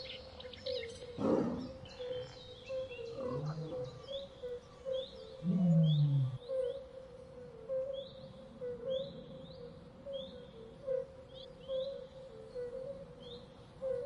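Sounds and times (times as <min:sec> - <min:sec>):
birds chirping: 0:00.0 - 0:06.8
big cat growling: 0:01.2 - 0:01.8, 0:03.1 - 0:04.1, 0:05.4 - 0:06.4.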